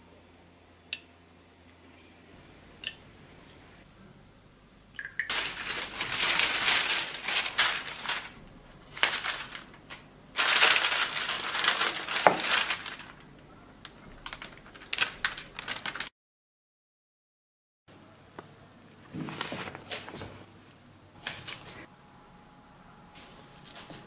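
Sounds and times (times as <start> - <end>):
baking paper crinkling: 5.3 - 16.1, 19.1 - 20.4.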